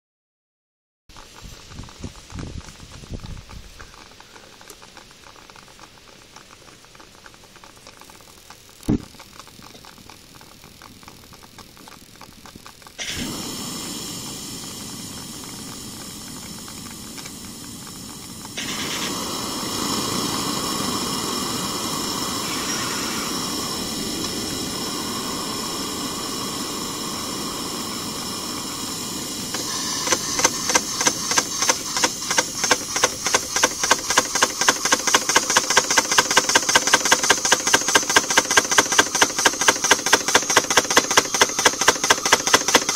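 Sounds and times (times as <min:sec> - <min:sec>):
gas burner hissing: 0:07.7 - 0:42.9
burner pulsing rhythmically: 0:12.7 - 0:42.9.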